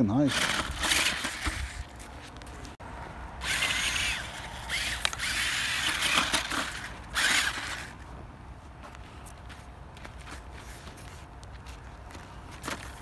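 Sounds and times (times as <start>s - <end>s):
toy truck motor whirring: 0.2s - 2.0s, 3.4s - 8.0s.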